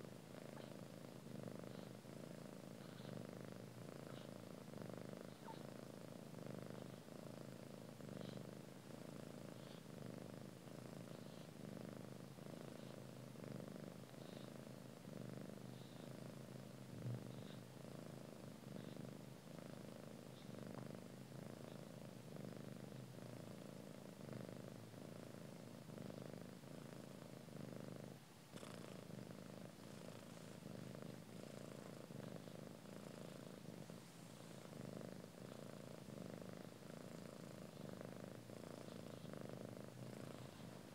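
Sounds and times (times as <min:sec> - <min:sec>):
cat purring: 0:00.0 - 0:40.9.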